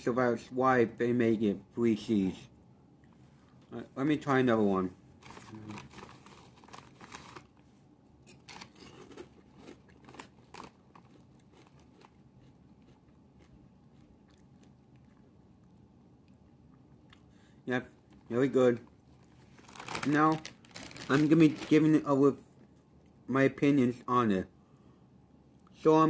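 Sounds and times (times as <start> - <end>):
potato chip crunching: 8.3 - 15.8, 19.5 - 21.9.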